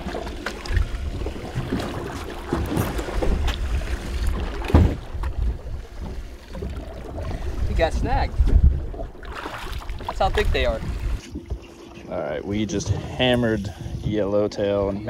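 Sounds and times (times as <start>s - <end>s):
water washing against hull: 0.0s - 15.0s
thump: 4.7s - 5.0s
wind buffeting microphone: 7.0s - 15.0s.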